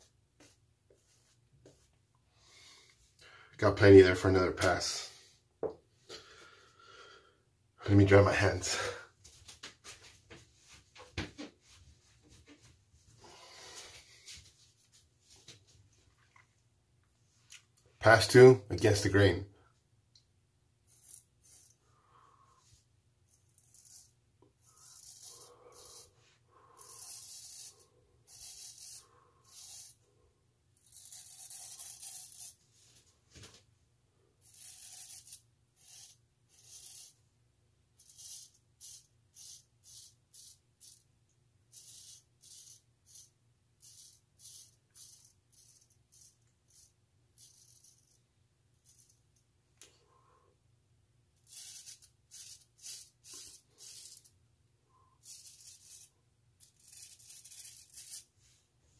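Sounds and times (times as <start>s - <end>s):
razor scraping stubble: 20.9s - 21.8s, 23.3s - 30.0s, 30.8s - 32.6s, 34.4s - 37.2s, 41.7s - 48.2s, 51.4s - 54.3s, 55.2s - 58.3s.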